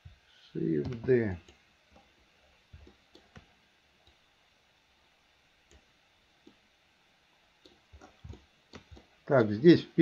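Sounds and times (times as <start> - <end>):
mouse and keyboard clicks: 7.6 - 9.1.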